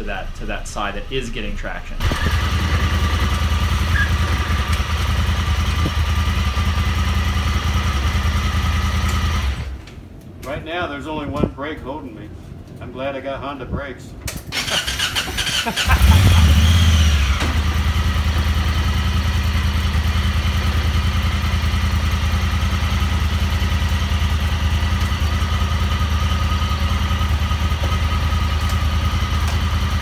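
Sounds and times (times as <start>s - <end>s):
engine revving and idling: 2.0s - 9.8s, 14.9s - 30.0s
engine starter cranking: 14.5s - 17.6s.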